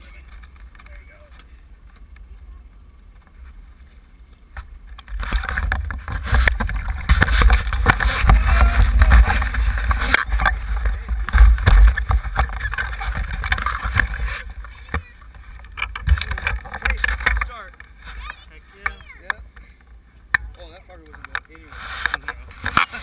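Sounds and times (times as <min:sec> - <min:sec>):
low handling rumble: 0:00.0 - 0:22.7
landing net knocking and rubbing: 0:05.1 - 0:14.4.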